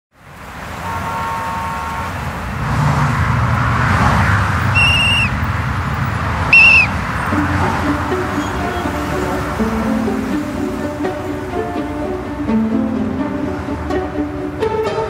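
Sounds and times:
passing city traffic: 0.1s - 15.0s
whistle blasts: 0.8s - 2.1s, 4.7s - 5.4s, 6.5s - 7.0s.

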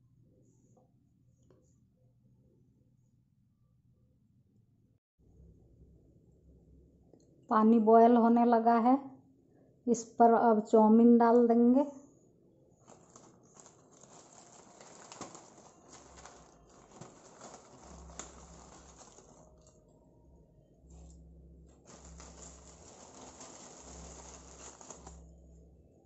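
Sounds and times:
low hum: 5.2s - 7.5s, 12.0s - 26.0s
plastic packet crinkling: 12.8s - 19.8s, 21.8s - 25.3s.

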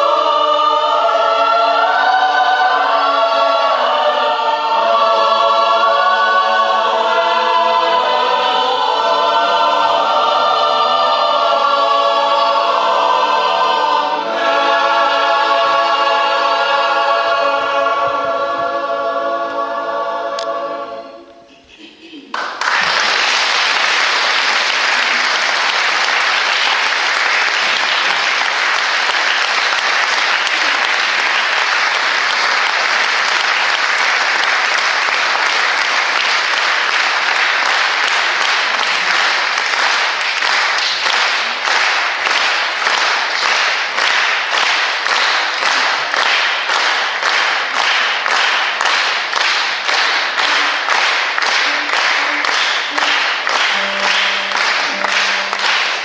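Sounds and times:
audience applause: 22.3s - 56.0s
rhythmic unison clapping: 22.3s - 56.0s.

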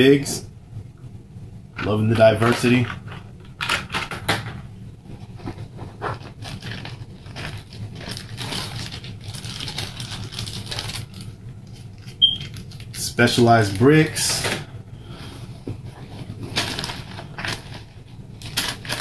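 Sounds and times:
plastic packaging crinkling: 6.1s - 14.1s, 16.1s - 19.0s.

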